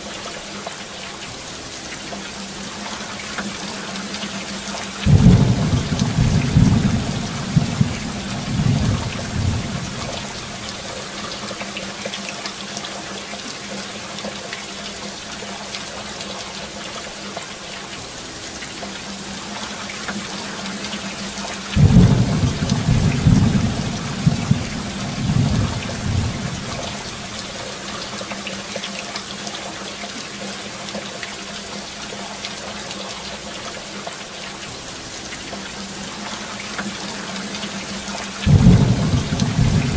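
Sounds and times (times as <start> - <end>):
steady rain falling: 0.0 - 39.9
thunder rumbling: 5.0 - 10.9, 21.8 - 27.5, 38.4 - 39.9.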